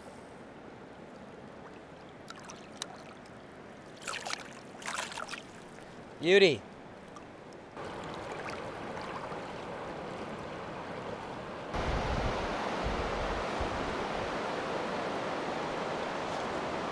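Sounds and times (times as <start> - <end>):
river water rushing over gravel: 1.5 - 6.6, 7.8 - 16.9
wind buffeting microphone: 11.7 - 14.4.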